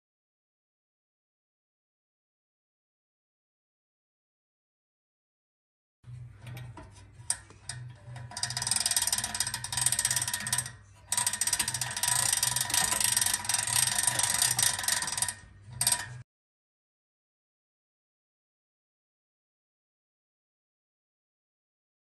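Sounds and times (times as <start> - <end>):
toy winch ratchet clicking: 6.5 - 16.2.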